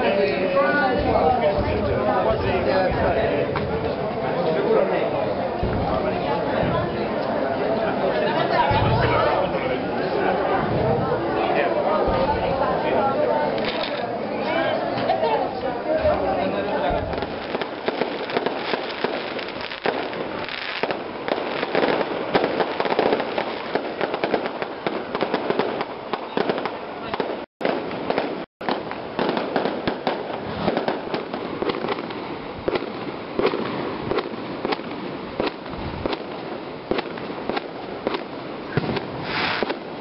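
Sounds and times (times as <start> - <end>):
firecrackers crackling: 0.0 - 7.4, 13.5 - 14.2, 16.1 - 40.0
crowd voices: 0.0 - 40.0.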